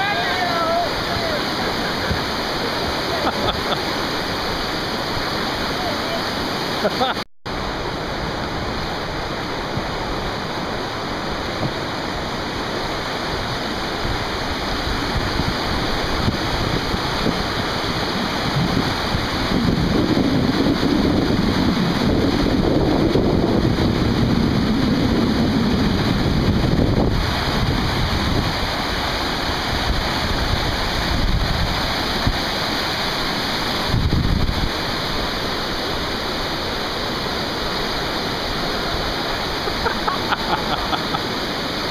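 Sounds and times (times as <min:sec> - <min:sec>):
river rapids rushing: 0:00.0 - 0:41.9
wind buffeting microphone: 0:09.5 - 0:40.0.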